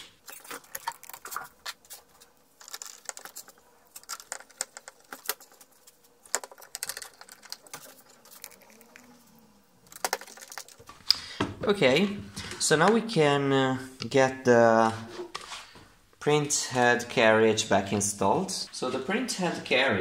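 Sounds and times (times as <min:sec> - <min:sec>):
plastic parts clicking: 0:00.2 - 0:09.1, 0:09.8 - 0:11.2.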